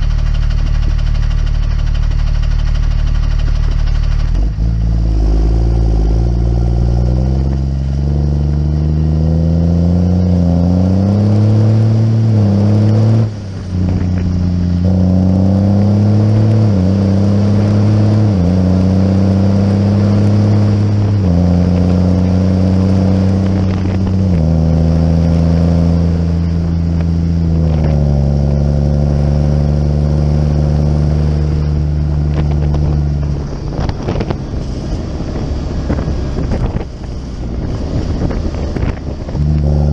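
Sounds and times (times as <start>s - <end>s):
diesel engine under load: 0.0s - 39.9s
wind noise on microphone: 10.6s - 19.4s, 20.2s - 29.2s, 30.2s - 39.9s.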